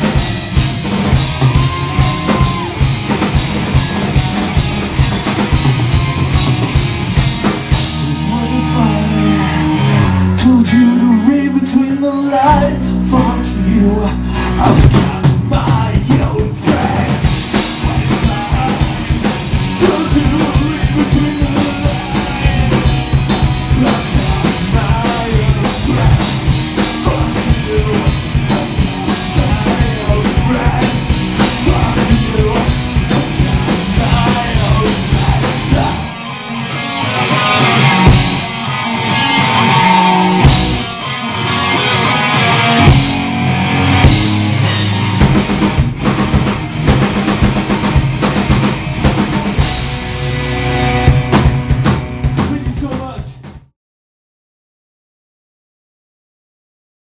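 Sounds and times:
live rock band playing: 0.0s - 53.7s
sung vocals: 7.7s - 36.3s.

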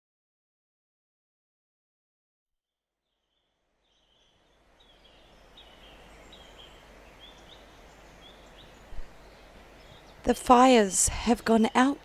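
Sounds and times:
birds chirping: 3.1s - 12.0s
rushing hiss of outdoor ambience: 3.1s - 12.0s.

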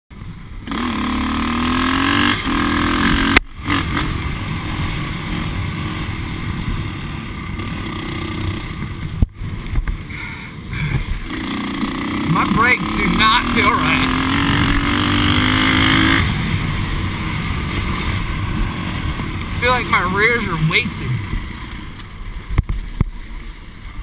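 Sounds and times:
dirt bike engine revving: 0.5s - 9.2s, 10.2s - 22.0s.

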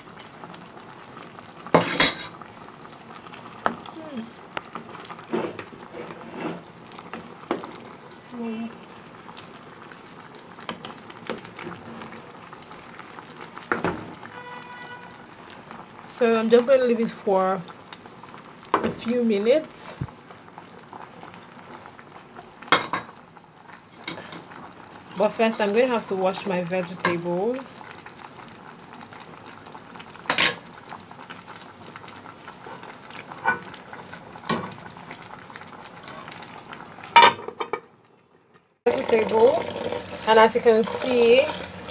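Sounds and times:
kitchenware clanking: 37.2s - 37.8s
metal spoon stirring in pot: 38.9s - 41.9s.

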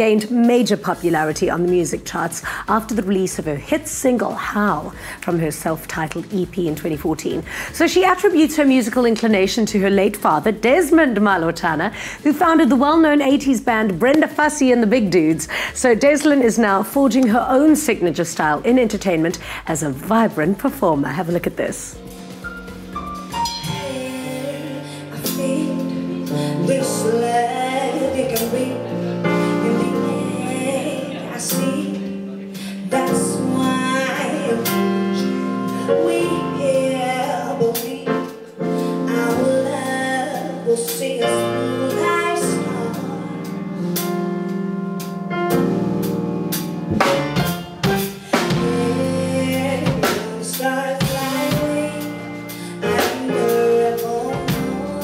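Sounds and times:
drum kit: 0.0s - 43.1s, 43.8s - 55.0s
electric keyboard: 22.0s - 55.0s
woman singing soul: 23.5s - 44.1s, 48.2s - 55.0s.

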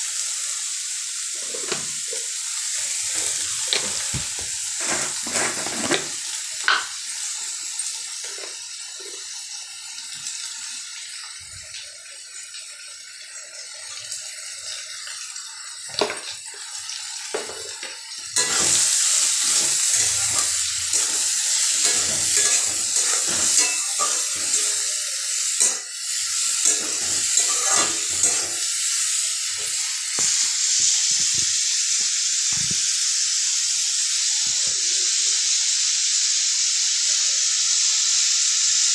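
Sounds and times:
vegetables sizzling in a pan: 0.0s - 12.4s, 13.0s - 38.9s
spatula scraping a steel pan: 4.7s - 6.1s, 18.4s - 18.8s, 19.4s - 24.8s.

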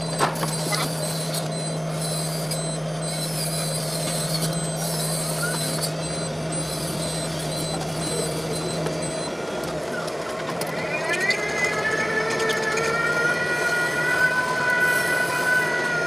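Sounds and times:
rapid pulsing warning beep: 0.0s - 10.2s
electric drive hum: 0.0s - 10.9s.

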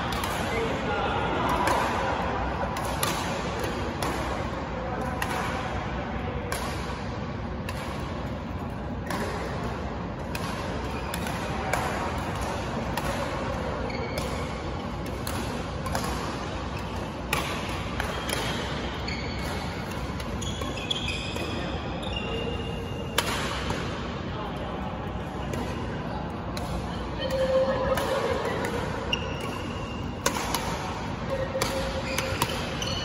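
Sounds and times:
rackets hitting shuttlecock: 0.0s - 33.0s
sports hall background noise: 0.0s - 33.0s
shoes squeaking on court floor: 13.8s - 14.7s, 19.0s - 23.1s, 29.0s - 30.2s, 31.3s - 33.0s.

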